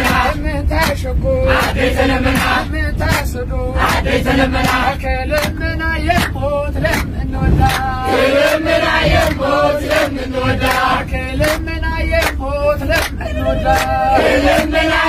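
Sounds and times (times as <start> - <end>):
group chanting a hymn: 0.0 - 0.4, 1.4 - 5.2, 6.9 - 11.7, 12.8 - 15.0
bus engine rumble: 0.0 - 15.0.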